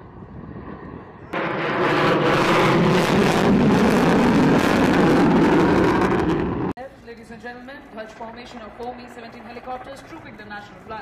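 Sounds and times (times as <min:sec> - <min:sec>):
jet flying overhead: 0:00.0 - 0:06.8.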